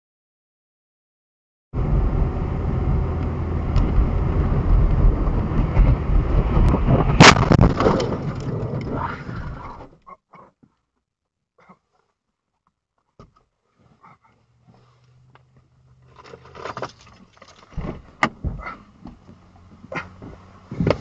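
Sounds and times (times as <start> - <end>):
loud collision bang: 7.1 - 8.4
car driving on slushy road: 14.5 - 21.0.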